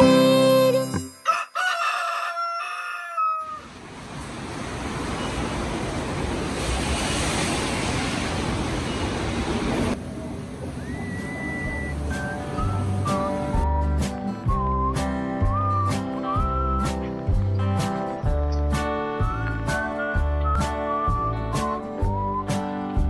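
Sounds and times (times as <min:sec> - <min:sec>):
music: 0:00.0 - 0:01.3, 0:11.8 - 0:23.0
rooster crowing: 0:01.2 - 0:03.7
whistled note rising: 0:10.8 - 0:17.0, 0:19.2 - 0:22.7.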